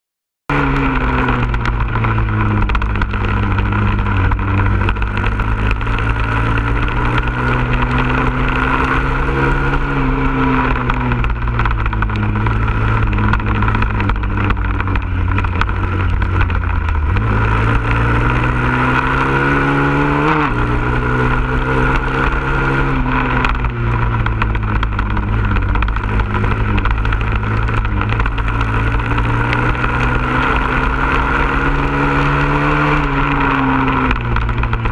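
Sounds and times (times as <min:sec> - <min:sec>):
motorcycle engine revving: 0:00.5 - 0:34.9.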